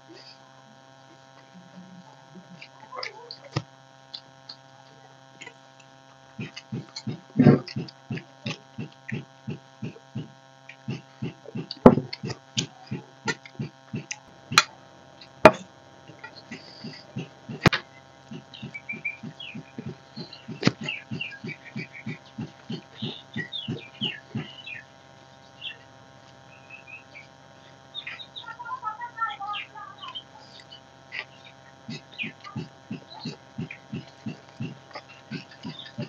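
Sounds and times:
steady electrical hum: 0.0 - 36.0
sharp mouth clicks: 2.4 - 4.7, 6.4 - 24.8, 30.4 - 36.0
close chewing of food: 6.3 - 24.8, 30.5 - 36.0.

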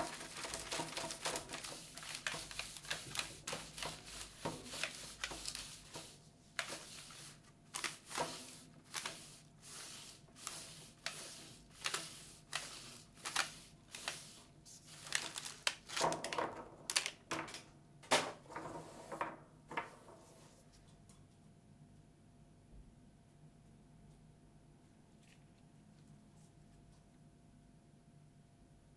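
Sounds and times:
plastic tray clicking and crinkling: 0.0 - 5.6, 15.0 - 17.7.

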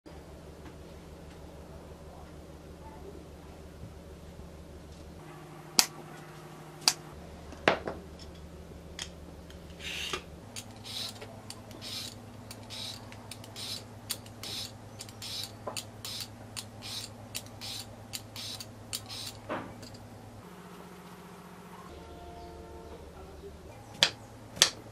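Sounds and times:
vegetable peeler scraping: 9.7 - 20.0.

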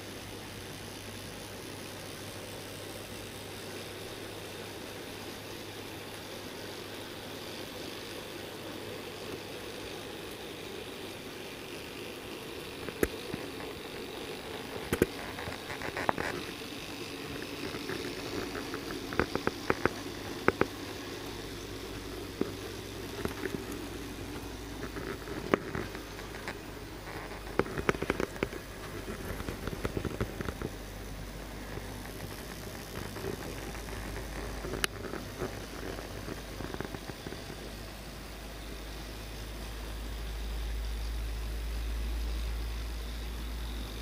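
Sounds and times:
model train whirring: 0.0 - 41.1
wheels clicking over rail joints: 1.8 - 30.8.

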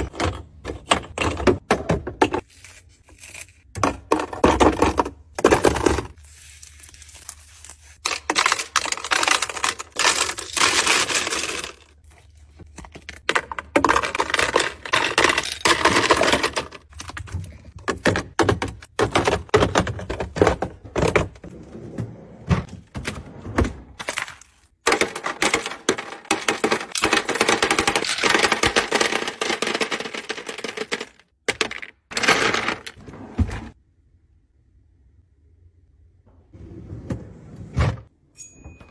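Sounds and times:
ice clinking against plastic bins: 8.1 - 11.9, 12.8 - 21.3, 24.0 - 33.0.

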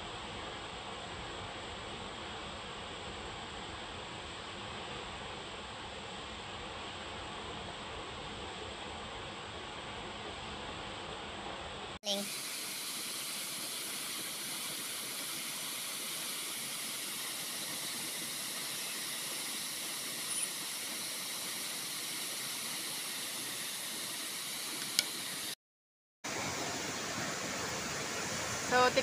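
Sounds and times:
waterfall rushing hiss: 12.1 - 25.6, 26.3 - 29.0.

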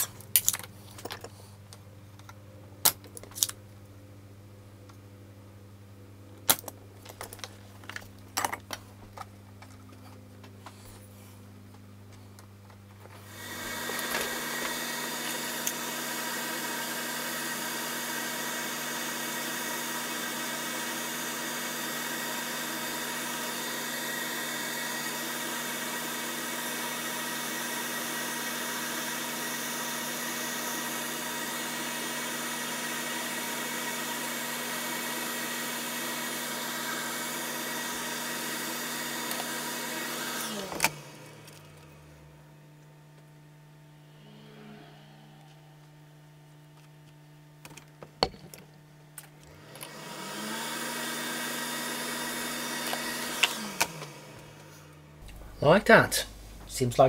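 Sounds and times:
extractor fan whirring: 0.0 - 48.2, 49.2 - 57.0.

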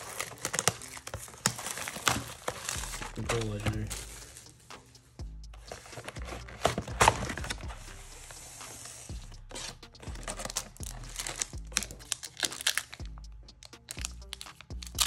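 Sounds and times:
foil wrapper crinkling and tearing: 0.0 - 4.5, 10.2 - 13.0, 13.8 - 15.0.

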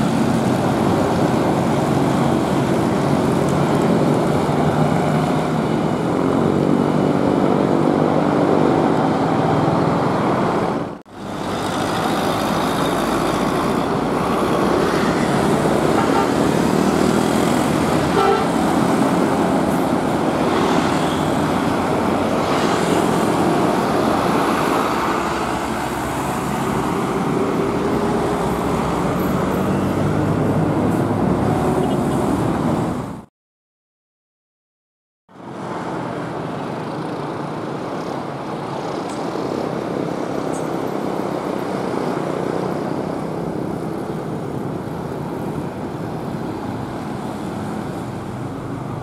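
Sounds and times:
busy road traffic: 0.0 - 33.3, 35.3 - 49.0
vehicle horn: 18.1 - 18.6.

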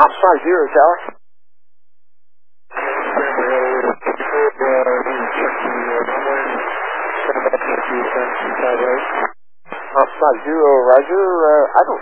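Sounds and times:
voice over radio: 0.0 - 1.1, 2.8 - 12.0
radio static hiss: 0.0 - 1.2, 2.7 - 12.0.

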